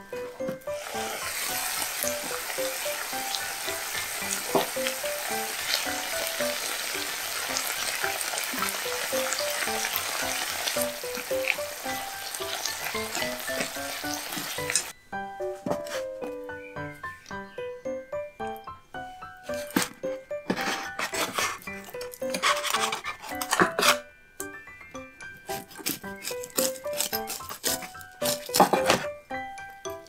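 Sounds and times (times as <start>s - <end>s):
vegetables sizzling in a pan: 0.7s - 14.9s.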